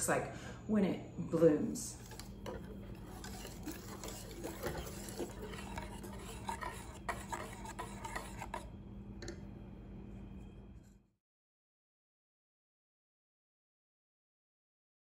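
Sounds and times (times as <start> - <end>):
steady low hum: 0.0 - 11.2
wire whisk scraping a saucepan: 1.9 - 8.7.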